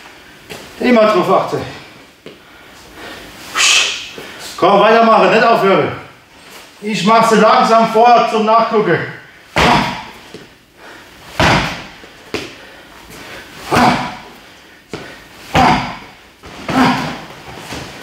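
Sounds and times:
heavy thuds on punching bag: 0:09.6 - 0:10.1, 0:11.4 - 0:12.5, 0:13.7 - 0:14.2, 0:14.9 - 0:16.1.

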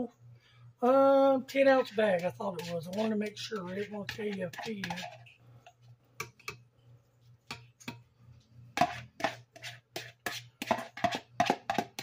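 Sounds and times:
spoon tapping plastic bowl: 0:02.5 - 0:06.7, 0:07.5 - 0:08.1, 0:10.0 - 0:12.0.

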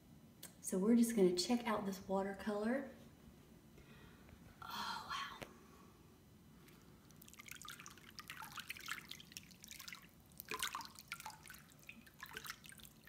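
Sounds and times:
hand splashing in bathwater: 0:07.2 - 0:13.0.

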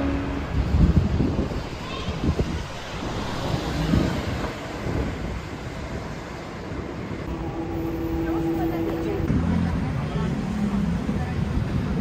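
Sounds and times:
traffic noise: 0:00.0 - 0:12.0
wind on the microphone: 0:00.1 - 0:07.3.

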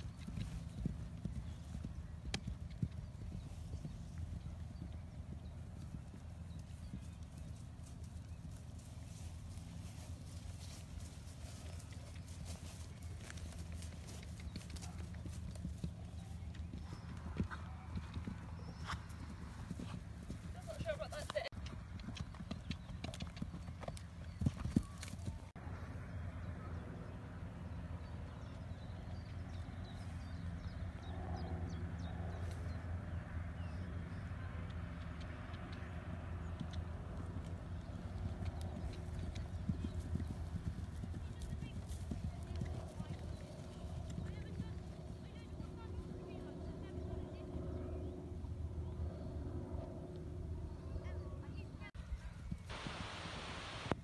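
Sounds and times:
horse hoofbeats on turf: 0:00.0 - 0:25.4.

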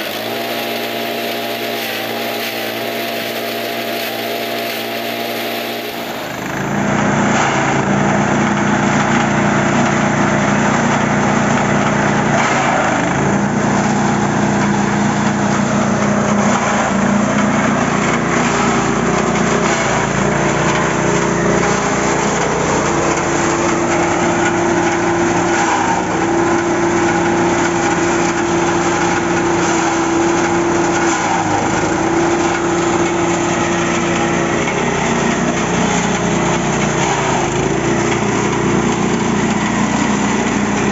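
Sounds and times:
forage chopper shredding branches: 0:00.0 - 0:40.9.

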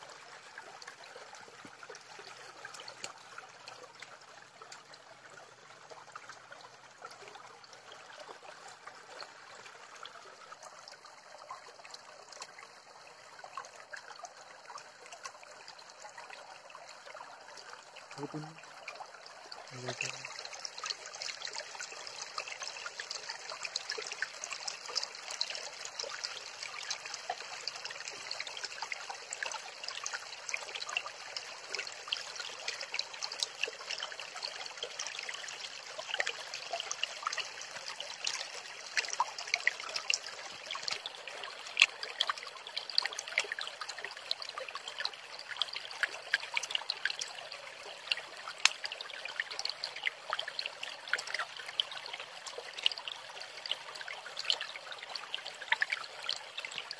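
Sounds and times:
stream babbling: 0:00.0 - 0:56.9.

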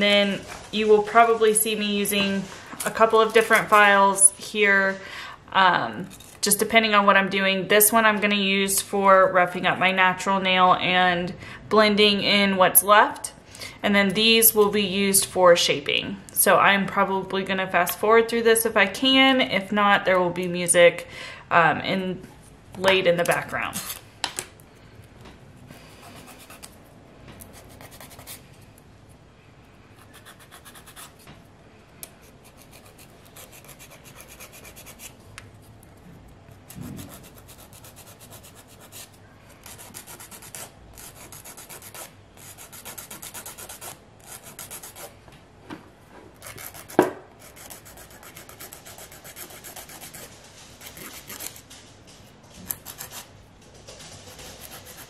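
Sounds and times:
nail file scraping fingernails: 0:32.0 - 0:35.1, 0:36.6 - 0:45.1, 0:46.4 - 0:51.6.

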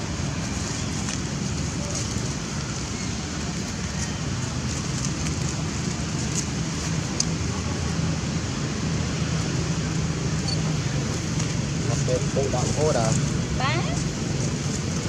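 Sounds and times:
constant hiss: 0:00.0 - 0:15.0.

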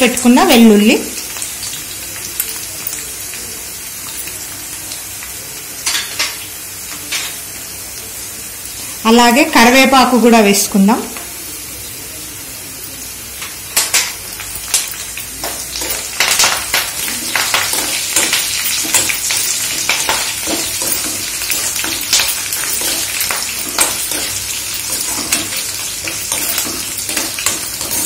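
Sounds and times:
hot oil sizzling and crackling: 0:00.0 - 0:28.0
steel spoon scraping a pan: 0:15.4 - 0:28.0.

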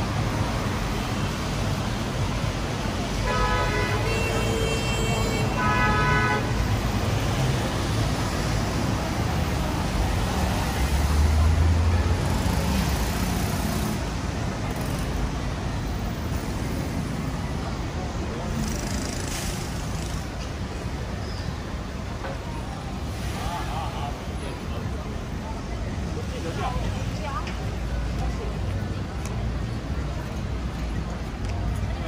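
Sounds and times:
road traffic: 0:00.0 - 0:32.0
car horns honking: 0:03.2 - 0:06.6.

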